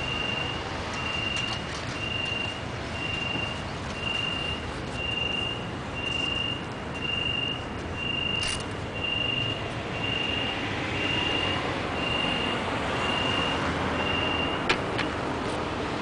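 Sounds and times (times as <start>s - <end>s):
high electronic beep: 0.0s - 14.6s
street traffic noise: 0.0s - 16.0s.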